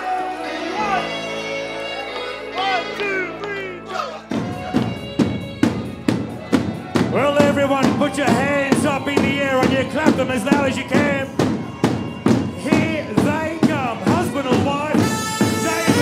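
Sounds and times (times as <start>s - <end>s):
large drums beaten with sticks: 4.3s - 16.0s.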